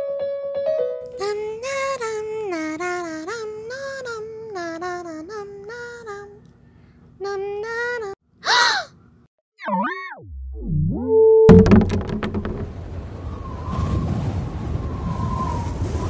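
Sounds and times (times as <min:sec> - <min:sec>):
young voice singing: 0:01.1 - 0:06.4, 0:07.2 - 0:08.9.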